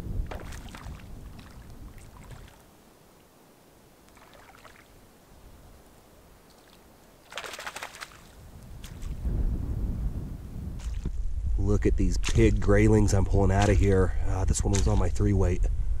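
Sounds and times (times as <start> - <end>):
fish splashing in water: 0.2 - 2.6, 4.1 - 4.9, 6.5 - 9.2
low rumble: 9.2 - 16.0.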